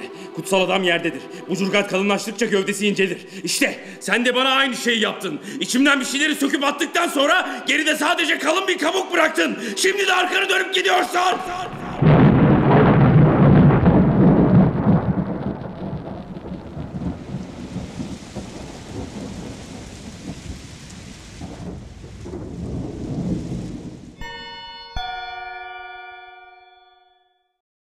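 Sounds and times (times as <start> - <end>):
thunder rumbling: 11.4 - 24.2
steady rain: 11.6 - 24.2
bell-like chime: 24.2 - 27.6.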